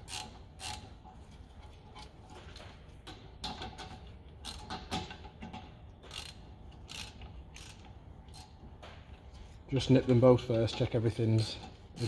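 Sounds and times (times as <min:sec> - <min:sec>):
socket ratchet clicking: 0:00.0 - 0:00.9, 0:06.1 - 0:08.5.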